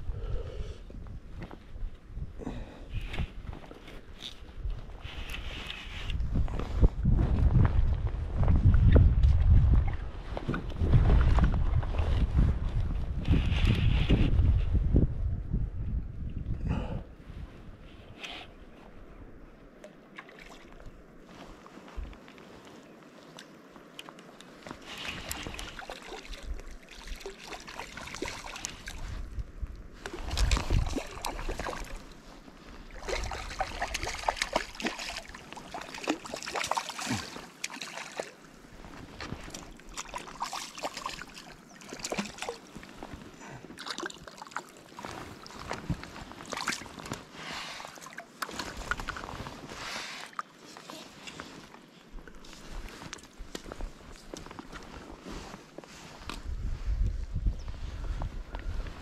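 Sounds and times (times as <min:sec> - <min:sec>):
river water sloshing and splashing: 0:19.8 - 0:56.4.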